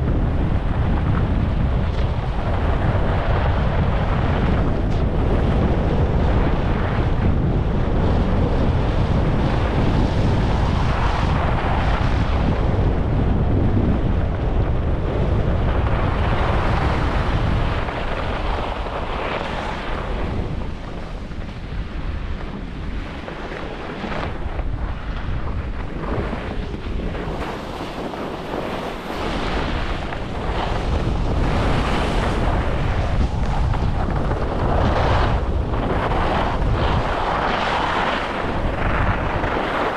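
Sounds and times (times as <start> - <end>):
wind buffeting microphone: 0.0 - 39.9
skis hissing and scraping on snow: 15.9 - 21.0, 26.0 - 39.9.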